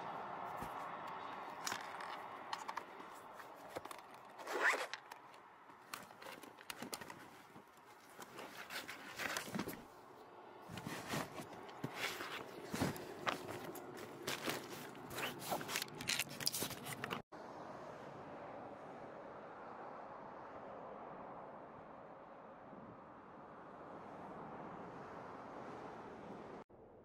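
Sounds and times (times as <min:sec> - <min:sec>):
zippers opening and closing: 0:01.6 - 0:07.5, 0:10.8 - 0:17.2
fabric bags rustling: 0:01.6 - 0:09.9, 0:10.7 - 0:17.3.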